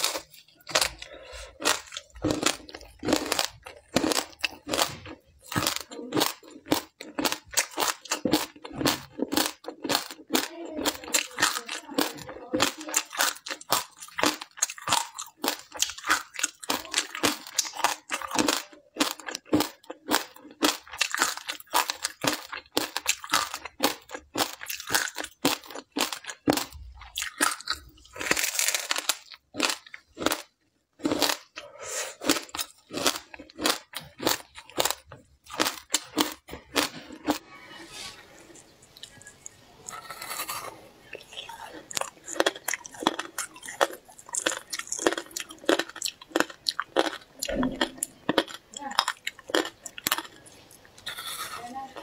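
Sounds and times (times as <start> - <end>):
ice crunching while chewed: 0.0 - 37.5, 38.3 - 52.0.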